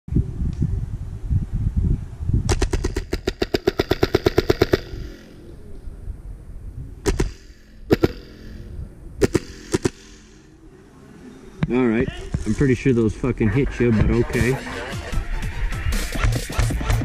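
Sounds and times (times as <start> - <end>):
airsoft rifle full-auto burst: 2.5 - 5.3, 7.0 - 10.4
airsoft rifle single shots: 7.0 - 8.6, 9.2 - 10.4.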